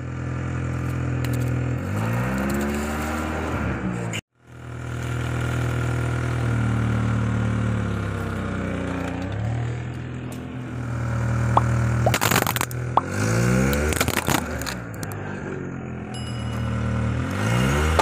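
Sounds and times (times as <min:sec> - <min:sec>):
car engine revving: 0:10.6 - 0:15.9, 0:17.2 - 0:18.0
tyre crushing plastic balls: 0:12.0 - 0:12.8, 0:13.8 - 0:15.0.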